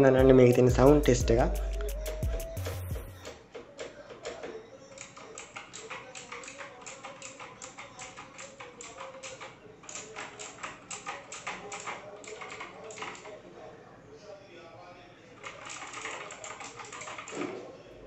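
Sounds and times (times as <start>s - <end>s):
clicky mechanical keyboard typing: 3.2s - 13.4s, 15.4s - 17.6s.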